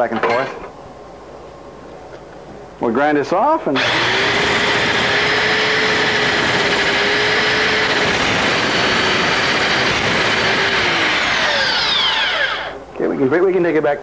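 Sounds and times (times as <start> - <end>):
power grinder whining: 3.8 - 12.8.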